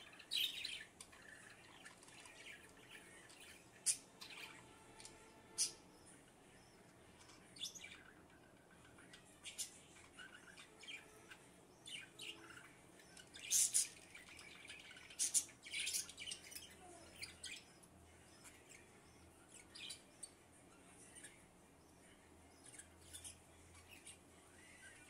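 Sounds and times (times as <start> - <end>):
budgerigars chirping: 0.0 - 4.8, 5.5 - 17.8.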